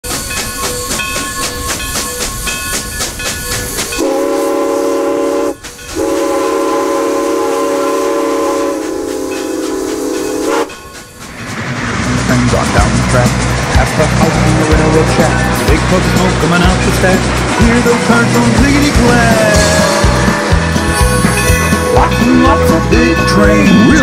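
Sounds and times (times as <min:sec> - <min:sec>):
steam train chime whistle: 0:00.0 - 0:11.0, 0:18.1 - 0:24.0
steam locomotive chuffing: 0:00.0 - 0:24.0.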